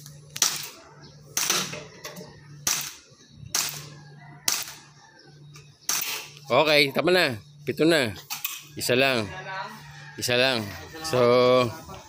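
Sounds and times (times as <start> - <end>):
airsoft pistol shots: 0.4 - 1.8, 2.6 - 4.8, 5.9 - 6.3.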